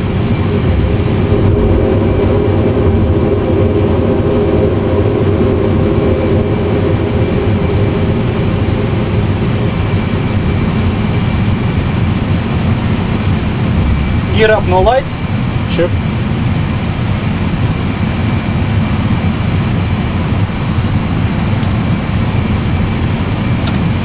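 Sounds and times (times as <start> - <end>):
jet engine roar: 0.0 - 24.0.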